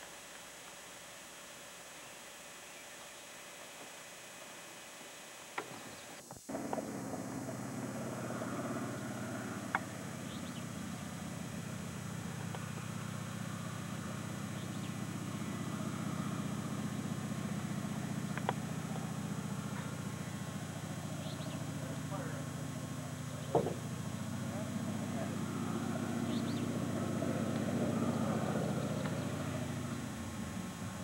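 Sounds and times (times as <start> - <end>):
piston aircraft engine running: 5.6 - 31.0
sharp ticks: 9.6 - 10.6, 18.3 - 19.0.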